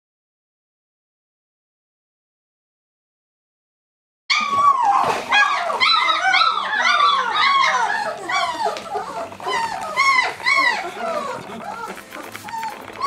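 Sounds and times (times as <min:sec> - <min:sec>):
puppies whining and squealing: 0:04.3 - 0:13.0.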